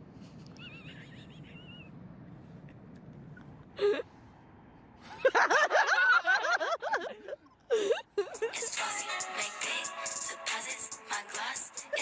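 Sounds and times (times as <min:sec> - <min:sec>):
young men laughing loudly: 0:05.2 - 0:08.6.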